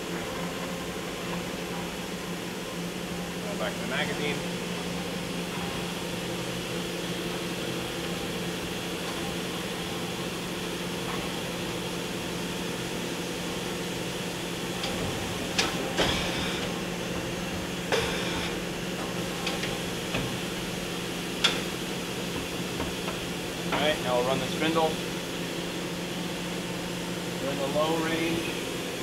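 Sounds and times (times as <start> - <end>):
steady machine hum: 0.0 - 29.0.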